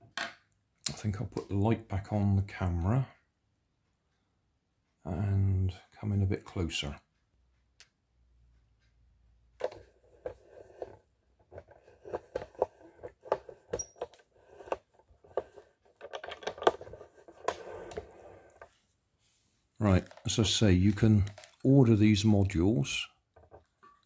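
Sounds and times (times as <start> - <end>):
hands handling wires and plastic: 9.6 - 18.8, 19.8 - 24.0.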